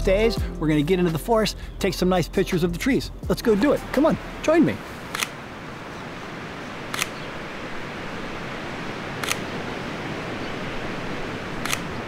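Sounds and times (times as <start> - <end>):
camera shutter clicking: 5.1 - 5.4, 6.9 - 7.2, 9.2 - 9.5, 11.6 - 12.0.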